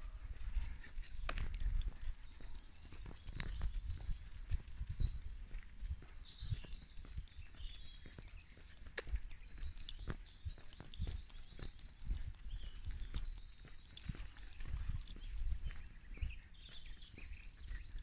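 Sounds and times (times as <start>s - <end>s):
footsteps on paved lane: 0.0s - 18.0s
songbirds singing: 0.0s - 18.0s.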